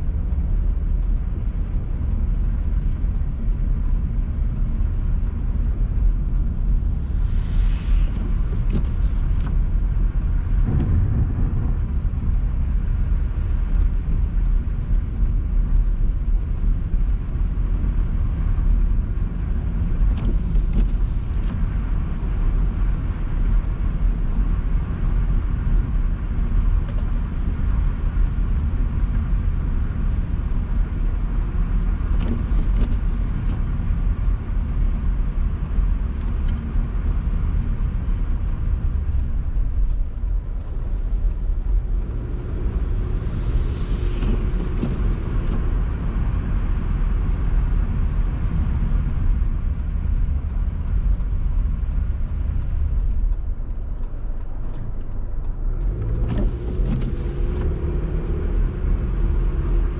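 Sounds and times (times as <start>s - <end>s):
car engine and tyres rumbling: 0.0s - 59.9s
faint ticks: 49.7s - 58.3s.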